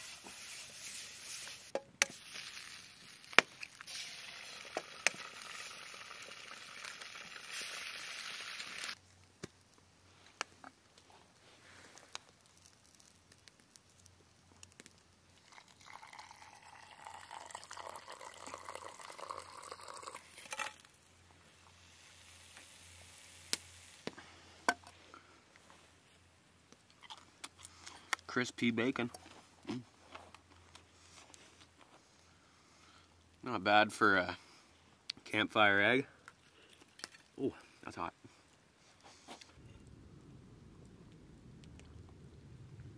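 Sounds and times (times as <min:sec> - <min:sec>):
eggs sizzling in a skillet: 0:00.0 - 0:09.9, 0:10.7 - 0:24.5
water pouring into coffee dripper: 0:15.4 - 0:20.3.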